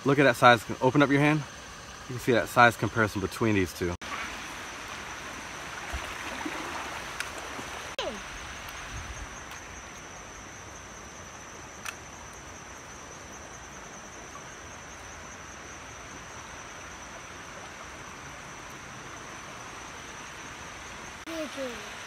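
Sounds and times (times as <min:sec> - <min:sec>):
creek rushing over stones: 0:04.0 - 0:08.9.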